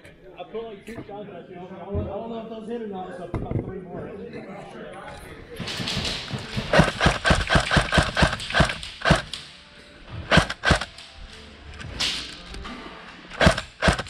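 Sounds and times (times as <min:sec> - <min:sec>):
thumps: 0:05.6 - 0:09.4.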